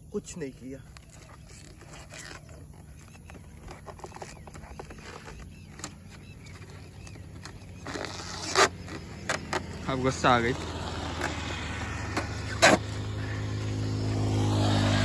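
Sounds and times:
vinyl film peeling crackle: 0.8s - 9.9s.

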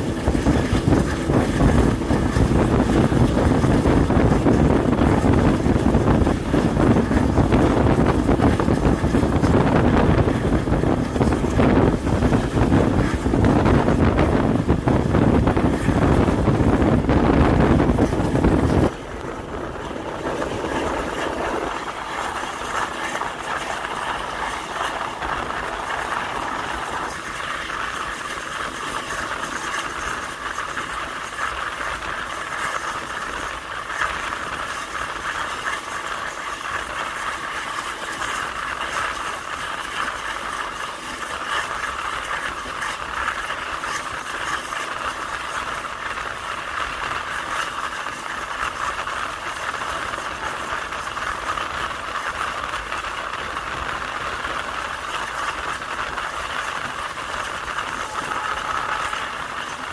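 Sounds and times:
train wheels on rails: 0.0s - 59.9s
wind buffeting microphone: 0.0s - 59.9s
train coach rattling: 47.0s - 59.9s.

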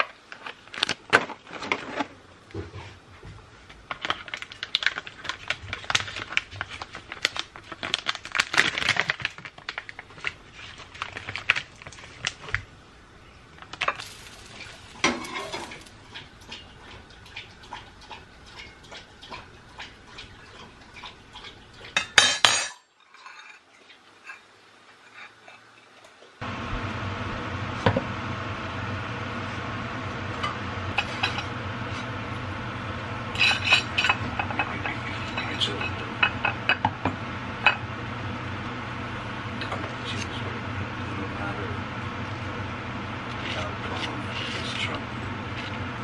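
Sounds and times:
dishes and utensils clinking: 21.4s - 24.5s, 33.4s - 36.9s.

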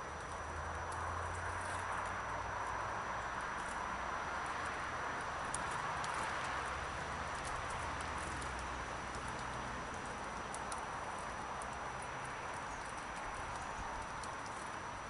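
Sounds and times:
faint high-pitched ticks: 7.3s - 15.0s.

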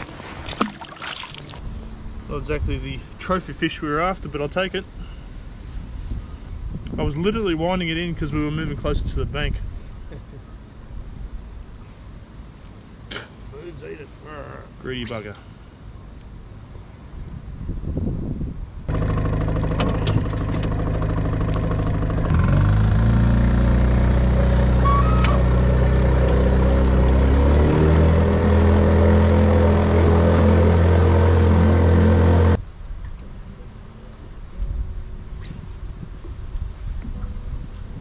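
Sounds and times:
outboard motor running: 18.9s - 32.6s.

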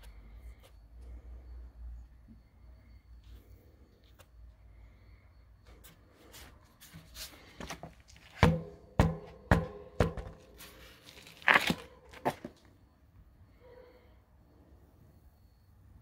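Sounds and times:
bicycle wheel knocks: 7.7s - 10.6s.

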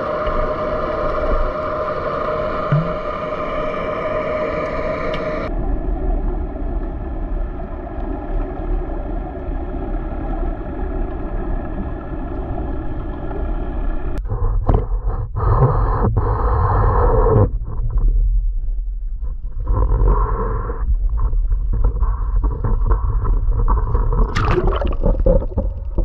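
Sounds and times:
low rumble of water: 0.0s - 26.0s
underwater droning hum: 0.0s - 26.0s
water splashing: 2.7s - 3.3s, 22.2s - 26.0s.

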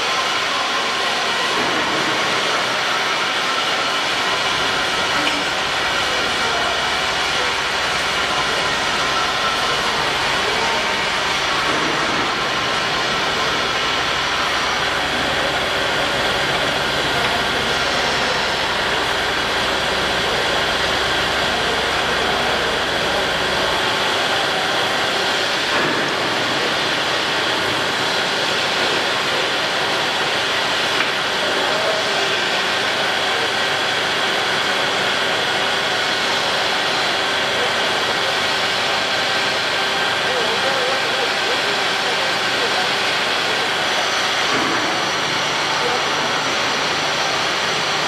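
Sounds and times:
machinery hum: 0.0s - 48.0s.

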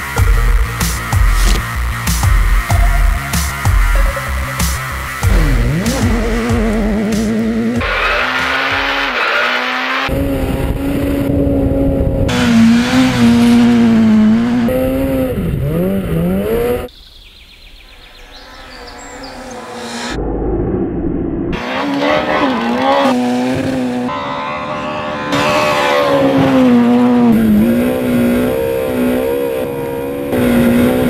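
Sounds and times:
rally car engine revving hard: 3.4s - 16.9s, 21.6s - 31.0s.

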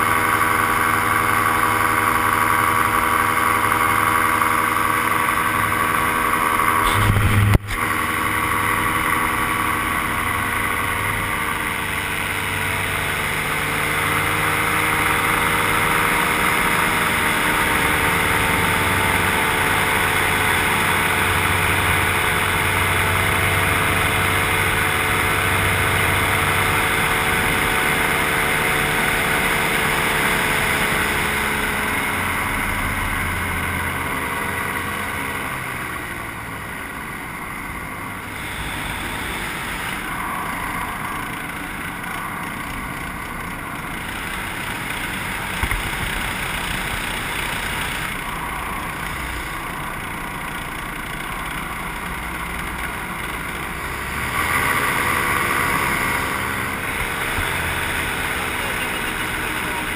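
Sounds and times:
paramotor engine running: 0.0s - 59.9s
sharp knock: 6.8s - 7.9s.

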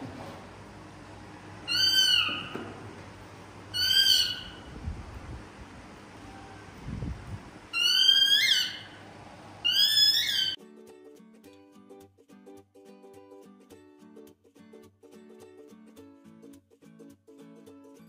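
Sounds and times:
baby monkey high-pitched cries: 1.6s - 2.5s, 3.7s - 4.7s, 7.7s - 9.0s, 9.6s - 10.6s.

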